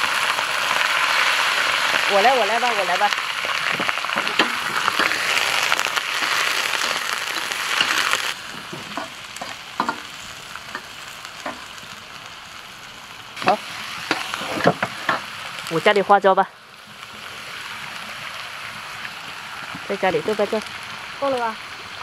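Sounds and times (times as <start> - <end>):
meat sizzling in hot oil: 0.0 - 22.0
metal ladle scraping wok: 3.9 - 11.7, 13.4 - 15.3.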